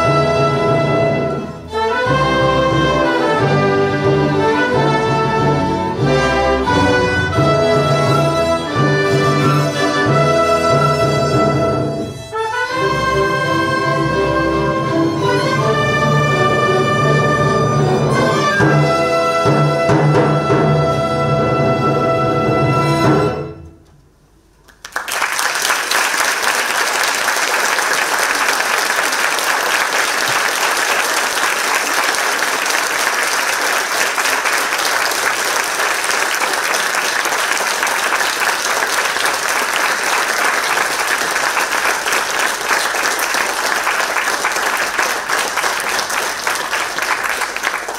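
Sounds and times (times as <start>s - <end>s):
audience applauding: 24.6s - 47.9s.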